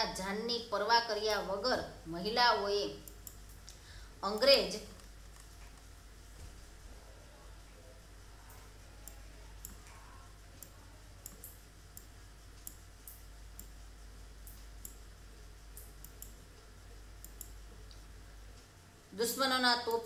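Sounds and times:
steady low hum: 0:00.0 - 0:20.0
computer mouse clicking: 0:08.5 - 0:10.0, 0:10.6 - 0:13.8, 0:14.4 - 0:15.0, 0:15.7 - 0:16.4, 0:17.2 - 0:18.0.

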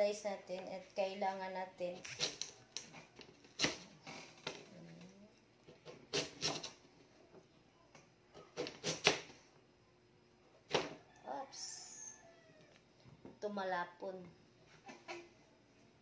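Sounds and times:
knife chopping on cutting board: 0:03.6 - 0:03.9, 0:08.5 - 0:09.3.

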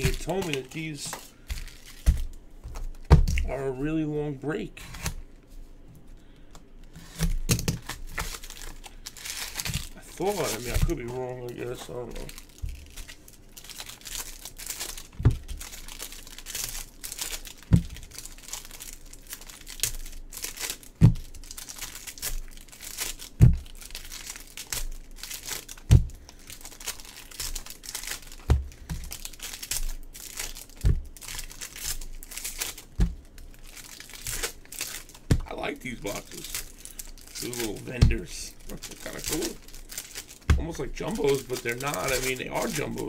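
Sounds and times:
foil packs tearing and crinkling: 0:00.0 - 0:04.1, 0:06.8 - 0:43.0
dull thump: 0:33.0 - 0:33.2.

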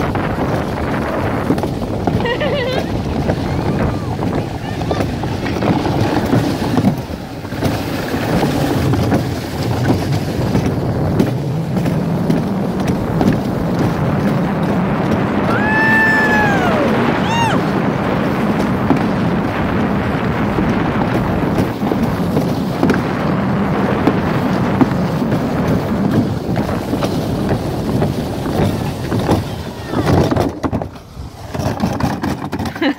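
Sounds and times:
sled rumbling down track: 0:00.0 - 0:32.9
wind on microphone: 0:00.0 - 0:32.9
person whooping: 0:15.5 - 0:17.7.

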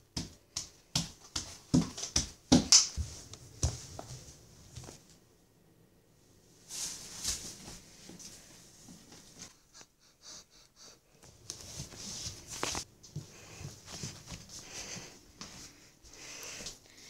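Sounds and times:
breathy rustling: 0:09.3 - 0:17.0.

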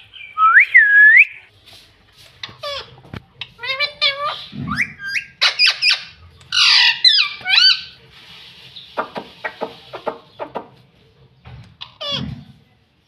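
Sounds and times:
parakeets whistling and squawking: 0:03.6 - 0:08.0
parakeet clicking chatter: 0:09.0 - 0:10.7.

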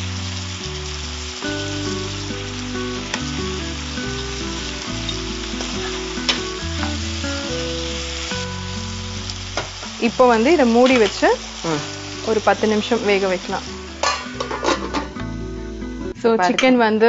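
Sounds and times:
food sizzling in oil: 0:00.0 - 0:17.0
instrumental background music: 0:00.0 - 0:17.0
spatula clinking on pan: 0:14.0 - 0:15.0.

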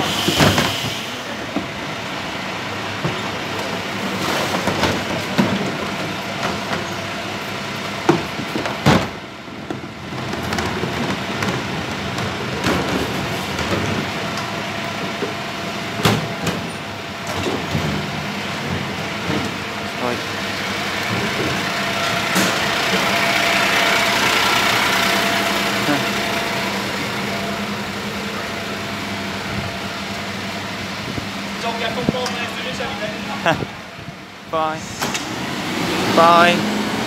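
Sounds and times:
refuse truck engine running: 0:00.0 - 0:37.0.

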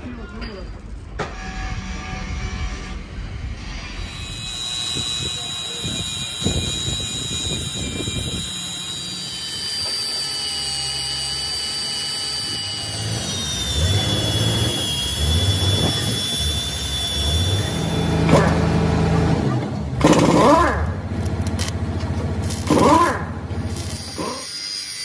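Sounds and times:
drill motor whining: 0:02.0 - 0:25.0
drill bit squealing in metal: 0:03.0 - 0:18.6, 0:22.4 - 0:25.0.

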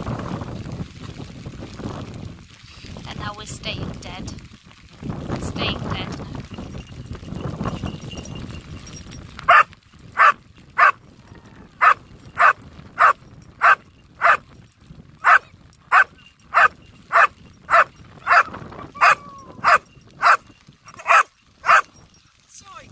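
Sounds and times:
dog barking: 0:09.5 - 0:11.0, 0:11.8 - 0:14.4, 0:15.2 - 0:22.0.

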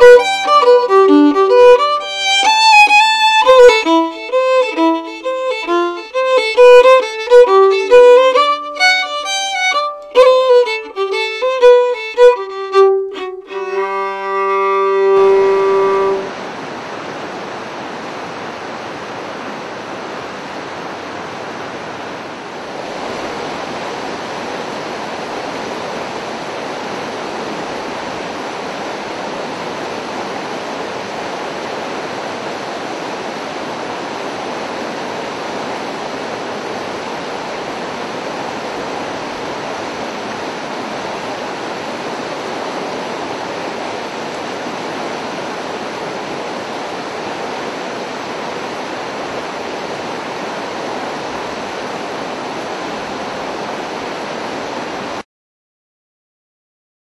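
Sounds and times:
creek water rushing: 0:00.0 - 0:55.2.

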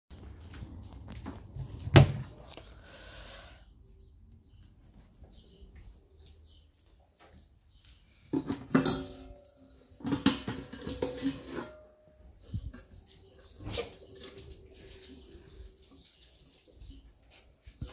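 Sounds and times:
metal bowls clattering: 0:08.3 - 0:17.0.

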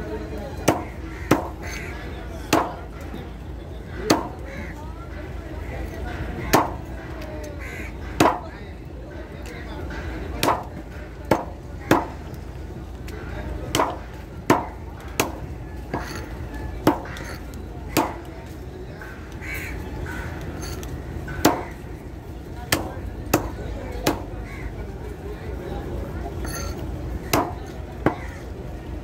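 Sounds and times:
cleaver chopping fish on wood: 0:00.6 - 0:01.8, 0:02.5 - 0:02.8, 0:04.0 - 0:04.4, 0:06.5 - 0:06.8, 0:08.2 - 0:08.5, 0:10.4 - 0:12.2, 0:13.7 - 0:18.3, 0:21.3 - 0:21.8, 0:22.7 - 0:24.4, 0:27.2 - 0:28.3.

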